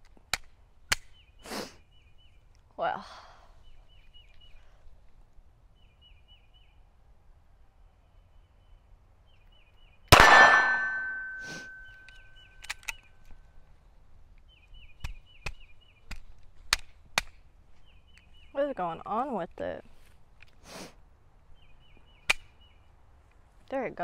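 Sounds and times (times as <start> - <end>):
pistol shot: 10.1 - 11.2
metallic ring: 10.2 - 12.0
light sharp pistol clicks: 12.0 - 13.3.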